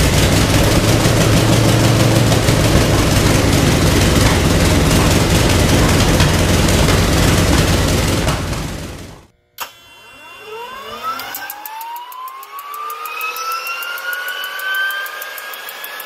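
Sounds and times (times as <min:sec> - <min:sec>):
radial aircraft engine running: 0:00.0 - 0:09.3.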